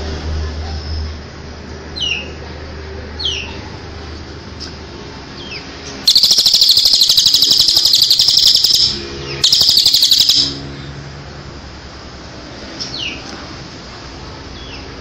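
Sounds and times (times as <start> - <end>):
bird down-slurred chirps: 6.1 - 10.6
loud rapid bird trill: 6.1 - 10.7.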